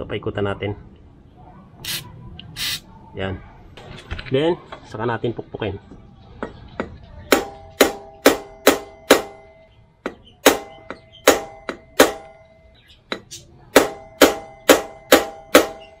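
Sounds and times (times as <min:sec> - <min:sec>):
hammer striking metal axle: 0:06.4 - 0:16.0.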